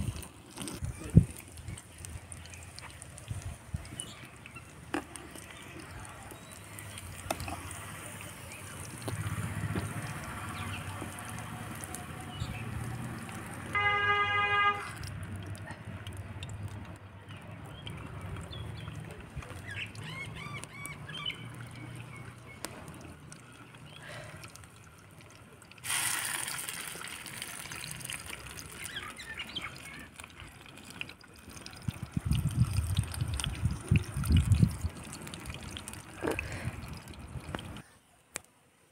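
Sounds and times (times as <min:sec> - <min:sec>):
food sizzling in oil: 0:25.8 - 0:30.2.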